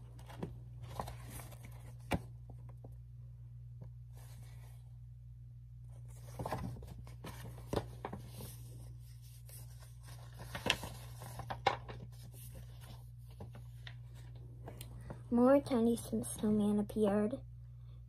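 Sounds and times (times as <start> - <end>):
paper pages rustling: 0.0 - 2.3, 5.9 - 15.2
steady low hum: 0.0 - 18.0.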